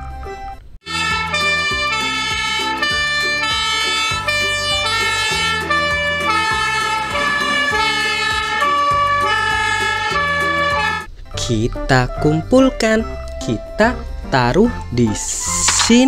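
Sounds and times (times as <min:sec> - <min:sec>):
fire engine two-tone siren: 0:00.9 - 0:11.1.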